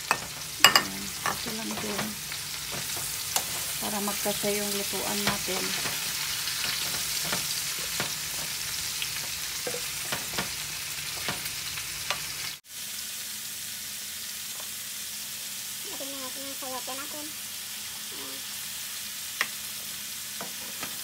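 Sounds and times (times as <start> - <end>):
spatula knocking and scraping pan: 0.0 - 3.8, 5.1 - 8.6, 9.2 - 11.5, 20.4 - 21.0
vegetables sizzling in a frying pan: 0.0 - 21.0.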